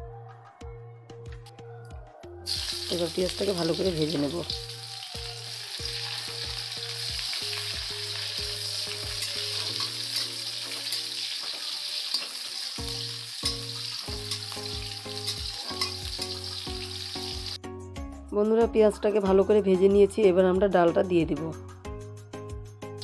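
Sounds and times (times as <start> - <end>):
onions sizzling in hot oil: 2.5 - 17.6.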